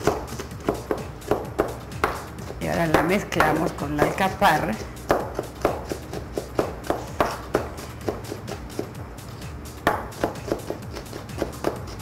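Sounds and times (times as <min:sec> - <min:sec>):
knife chopping on cutting board: 0:00.0 - 0:09.0, 0:09.8 - 0:12.0
background music: 0:00.0 - 0:12.0.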